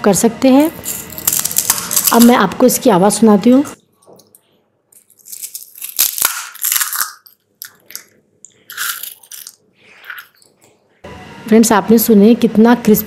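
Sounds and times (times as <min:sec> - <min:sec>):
crisp shells crunching: 0:00.8 - 0:02.4, 0:04.9 - 0:10.5.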